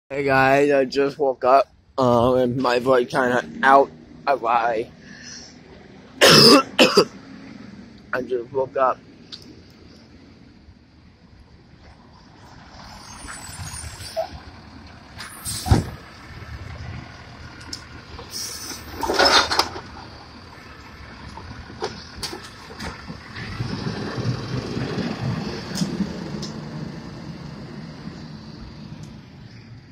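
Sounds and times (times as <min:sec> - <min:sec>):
truck engine running: 0:09.1 - 0:29.9
cart clattering into hopper: 0:18.8 - 0:20.0.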